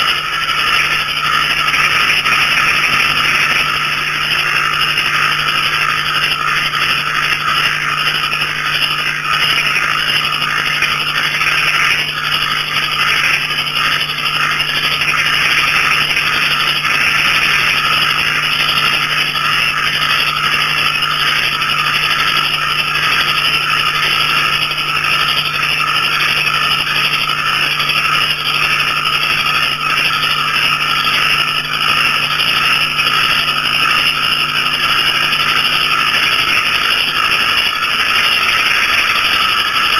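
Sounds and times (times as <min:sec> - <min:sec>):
frogs and crickets trilling: 0:00.0 - 0:39.9.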